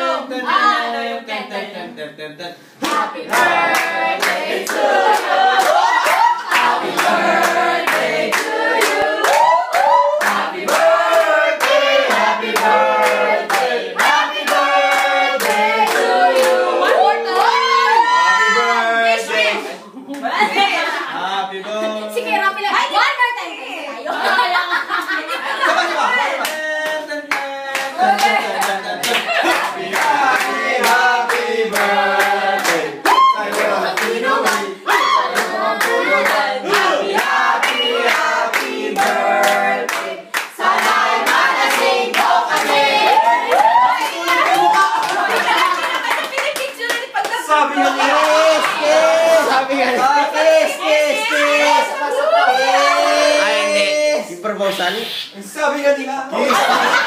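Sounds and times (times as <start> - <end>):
group singing: 0.0 - 22.6, 24.0 - 54.2
people clapping: 2.8 - 18.6, 24.9 - 53.2.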